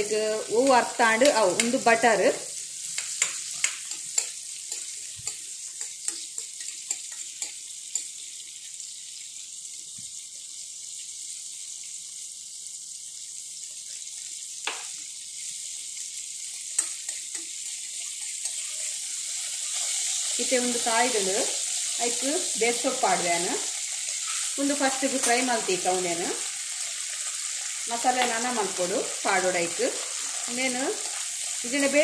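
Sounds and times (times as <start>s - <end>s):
butter sizzling in a pan: 0.0s - 32.0s
spoon tapping and scraping pan: 0.6s - 1.8s, 2.9s - 8.2s, 16.5s - 18.7s.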